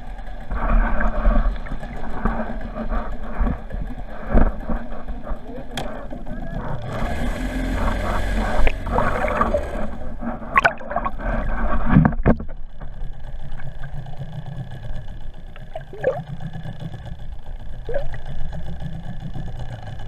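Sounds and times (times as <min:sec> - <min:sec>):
muffled underwater water rush: 0:00.0 - 0:20.0
knocks and splashes: 0:08.5 - 0:13.0, 0:15.6 - 0:16.2.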